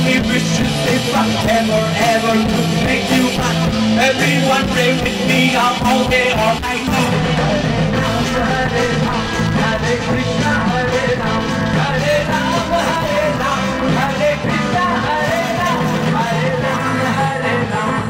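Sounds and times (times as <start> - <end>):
bass guitar: 0.0 - 18.0
distorted electric guitars: 0.0 - 18.0
drum kit: 0.0 - 18.0
man singing: 0.0 - 18.0.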